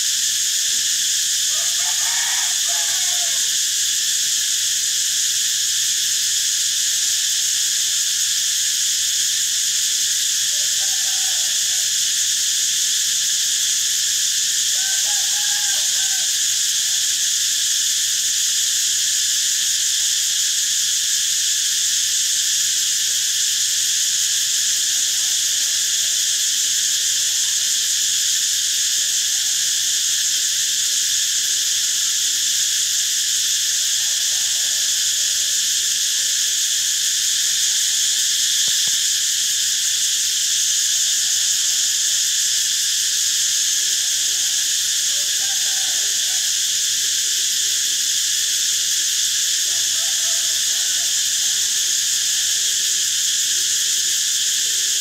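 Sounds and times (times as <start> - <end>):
cicadas buzzing: 0.0 - 55.0.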